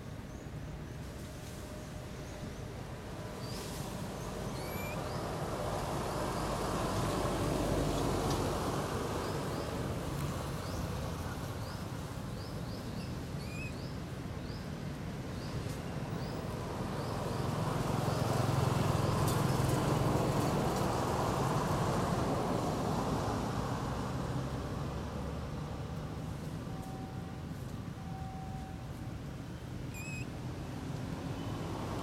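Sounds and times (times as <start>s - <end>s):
small bird chirping: 4.5s - 5.2s, 12.4s - 14.6s, 29.9s - 30.3s.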